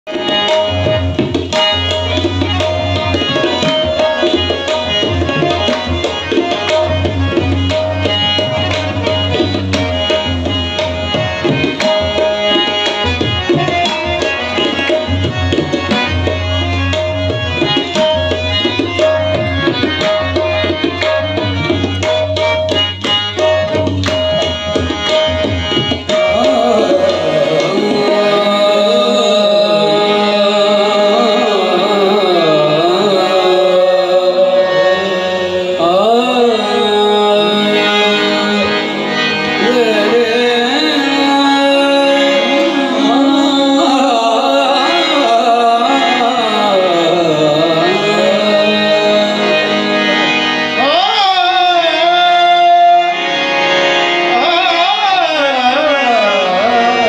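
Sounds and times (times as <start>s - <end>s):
harmonium holding notes: 0.1s - 57.0s
tabla rhythm: 0.1s - 57.0s
voices singing: 26.1s - 57.0s.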